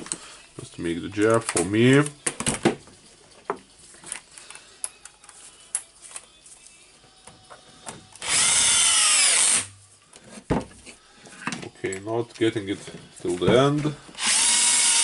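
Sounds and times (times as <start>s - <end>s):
light clicks of handled parts: 4.0s - 6.4s
cordless drill motor whining: 8.2s - 9.7s, 14.2s - 15.0s.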